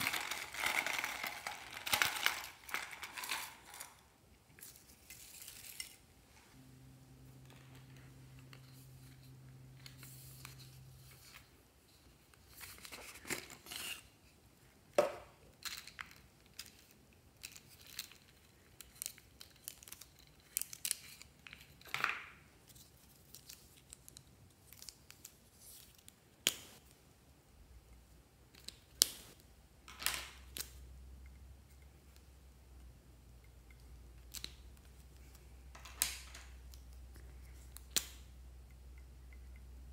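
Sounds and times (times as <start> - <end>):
plastic pens clicking and clattering: 0.0 - 6.0, 15.5 - 26.8, 33.6 - 38.3.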